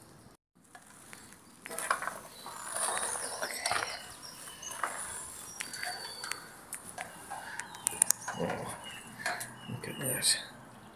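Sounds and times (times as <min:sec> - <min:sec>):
footsteps crunching on rubble: 0:00.8 - 0:09.4.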